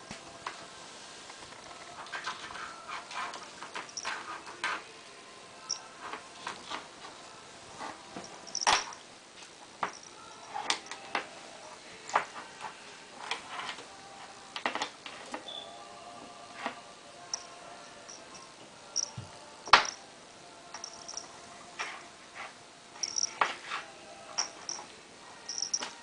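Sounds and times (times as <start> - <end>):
high-pitched squeaks: 23.0 - 23.4.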